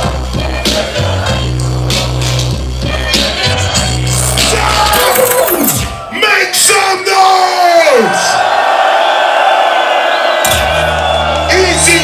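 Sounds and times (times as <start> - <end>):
deep bass notes: 0.0 - 6.0
hip-hop beat over pa system: 0.0 - 6.0.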